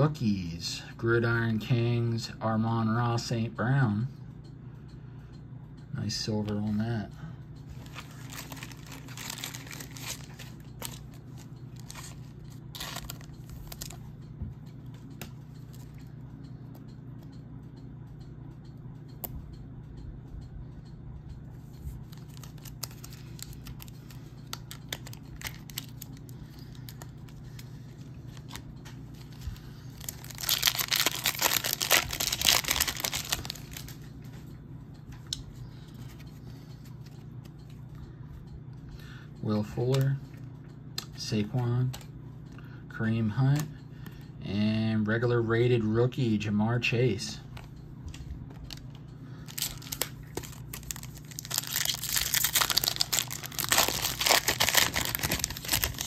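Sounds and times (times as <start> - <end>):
low hum: 2.2 - 56.0
plastic wrapper crinkling and tearing: 7.8 - 14.0, 22.1 - 27.6, 28.3 - 33.9, 48.6 - 56.0.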